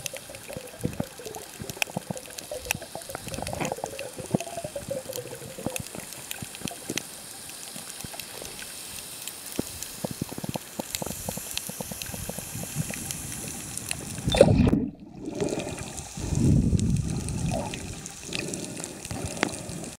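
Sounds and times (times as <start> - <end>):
sharp underwater clicks: 0.0 - 20.0
water sloshing and gurgling: 10.0 - 20.0.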